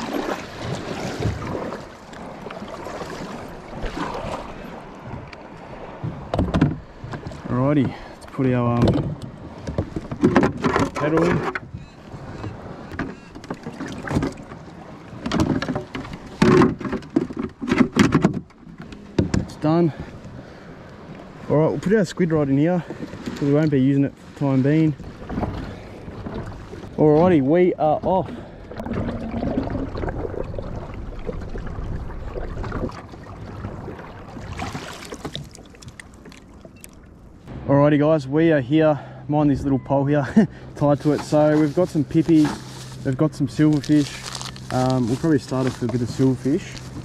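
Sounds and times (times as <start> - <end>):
water rushing along kayak: 0.0 - 47.0
knocks and clunks of fitting: 6.0 - 8.0, 8.7 - 11.8, 15.2 - 19.6
low rumble: 28.4 - 34.3, 37.3 - 47.0.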